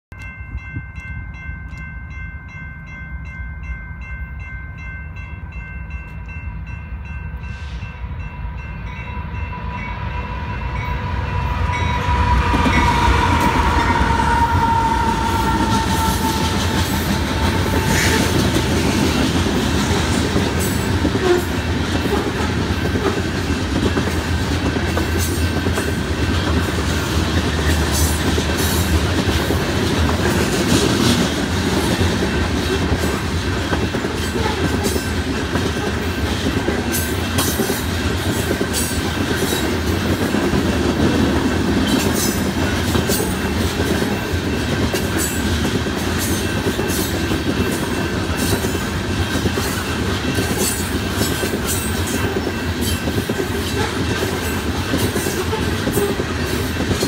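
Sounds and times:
crossing bells ringing: 0.1 - 57.0
heavy train rumble: 0.1 - 57.0
locomotive air horn: 9.6 - 19.0, 21.2 - 23.2
train wheels clickety-clack: 11.4 - 57.0.

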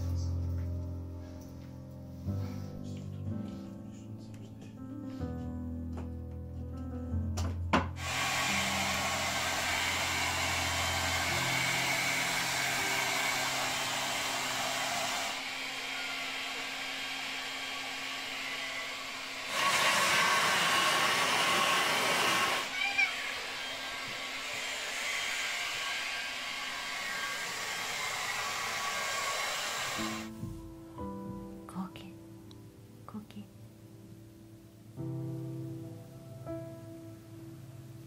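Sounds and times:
hair dryer blowing: 8.0 - 30.4.

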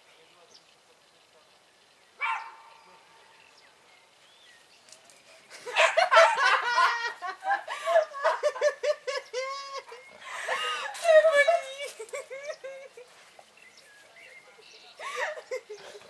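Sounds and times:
women laughing: 5.5 - 13.4, 14.7 - 16.0.

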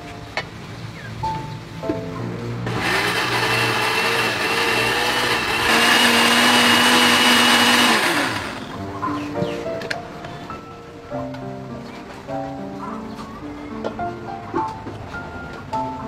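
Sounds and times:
blender motor whining: 2.7 - 8.7.

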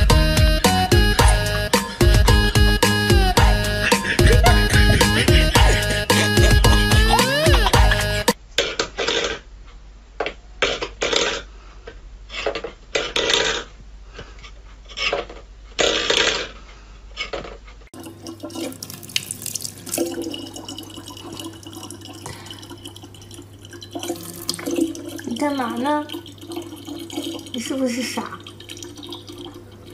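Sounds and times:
low hum: 0.9 - 8.4
water running into plastic bottle: 18.0 - 29.9.

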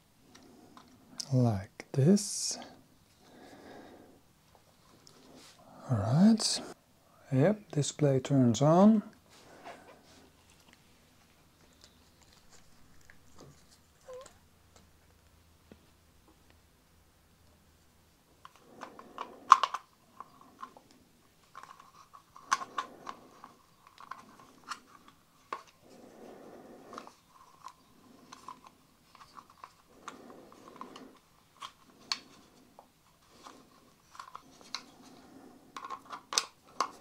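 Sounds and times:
plastic scraping and rubbing: 18.4 - 37.0.

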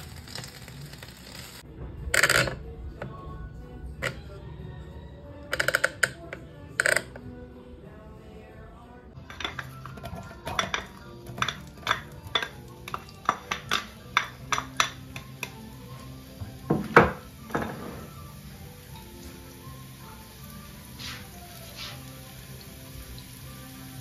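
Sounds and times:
soft background music: 0.0 - 24.0
knock on cooking pot: 16.4 - 18.1.

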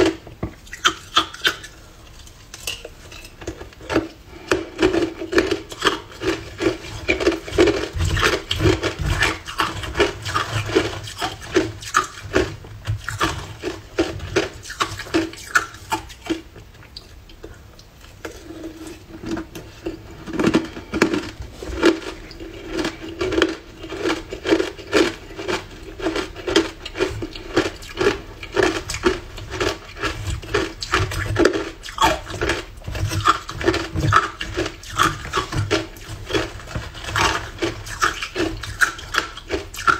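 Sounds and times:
ice crunching between teeth: 2.6 - 16.4, 19.8 - 39.9
steady hum: 13.5 - 26.0.

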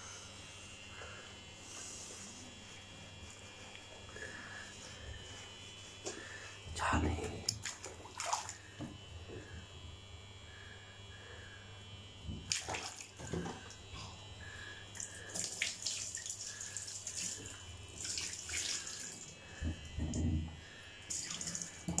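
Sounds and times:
water splashing in bathtub: 6.0 - 9.6, 12.2 - 14.2, 14.9 - 22.0.

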